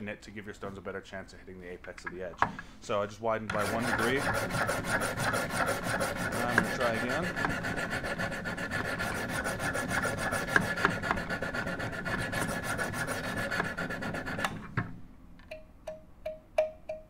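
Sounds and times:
sharpening stones scrubbing knife: 3.6 - 14.4
evenly spaced ticks: 15.5 - 17.0.

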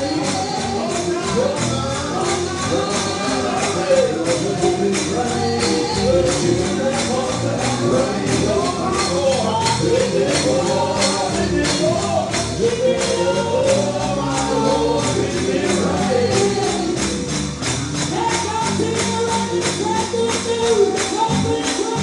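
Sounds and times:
people singing gospel: 0.0 - 22.0
tambourine beat: 0.0 - 22.0.

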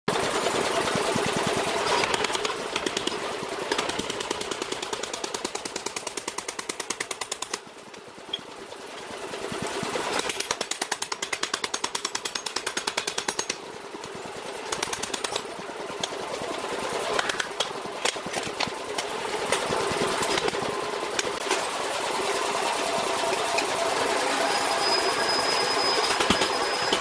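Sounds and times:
air hammer striking steel: 10.2 - 13.6.

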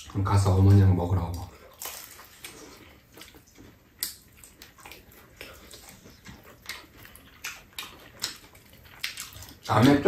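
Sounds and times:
people chewing: 0.0 - 10.0.

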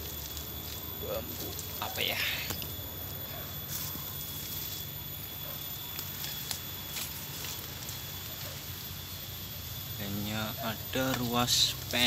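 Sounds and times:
footsteps through dry leaves: 3.6 - 5.0, 5.9 - 8.9.

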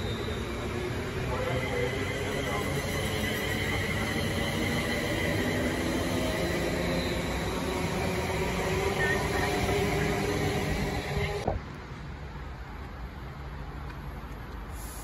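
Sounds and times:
train traction whine: 0.0 - 11.5.

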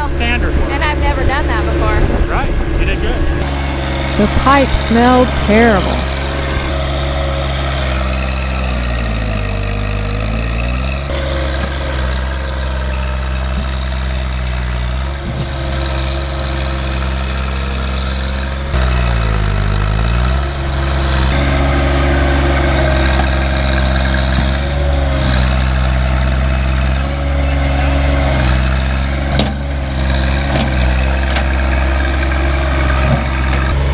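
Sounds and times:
steady mechanical whine: 0.0 - 28.4
tractor diesel engine running: 0.0 - 33.9
loader digging into soil: 28.3 - 33.9.

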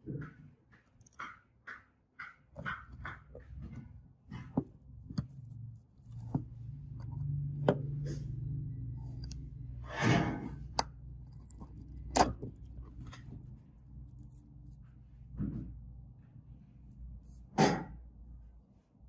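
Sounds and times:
metal tweezers clicking on metal: 10.6 - 13.2.

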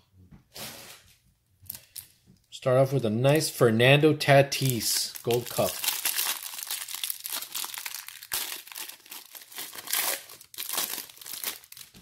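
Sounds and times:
plastic wrapper crinkling and tearing: 4.6 - 12.0.

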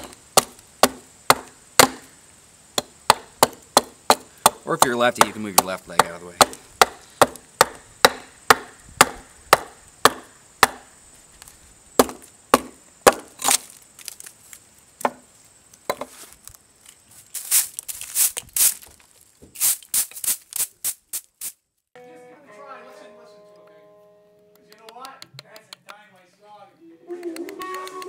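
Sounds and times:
axe chopping wood: 0.0 - 2.1, 2.8 - 10.9, 12.0 - 13.6
hand broom sweeping wood chips: 16.1 - 21.5.

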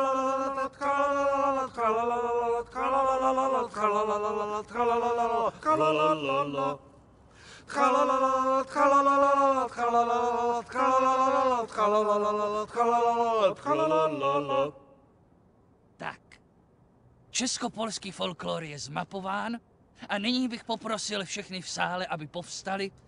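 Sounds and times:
men singing a cappella: 0.0 - 7.0, 7.6 - 14.9.

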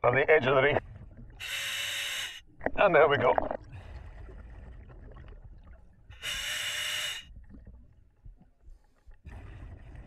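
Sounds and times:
exhaled air bubbling: 2.5 - 6.3, 7.2 - 10.0.

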